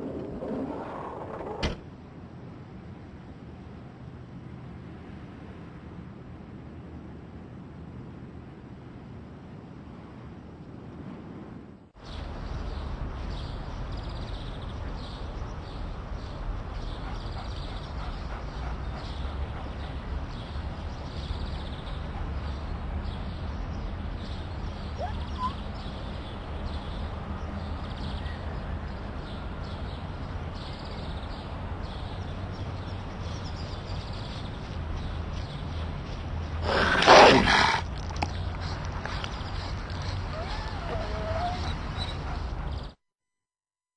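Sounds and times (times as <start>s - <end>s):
wind rumble on microphone: 0.0s - 36.7s
faint bird calls: 24.7s - 26.1s, 36.6s - 42.5s.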